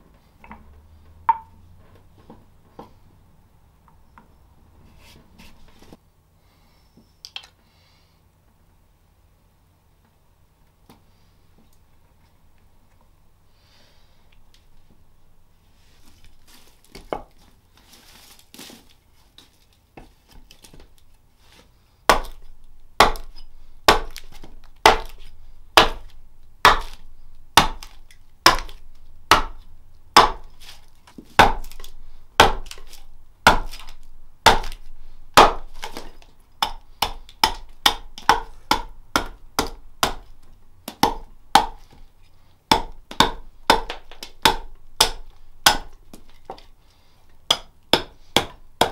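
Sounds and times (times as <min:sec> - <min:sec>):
quiet handling sounds: 0:00.0 - 0:06.0, 0:14.3 - 0:21.8
hatchet chopping wood: 0:22.1 - 0:42.0, 0:42.7 - 0:46.6, 0:47.5 - 0:48.9.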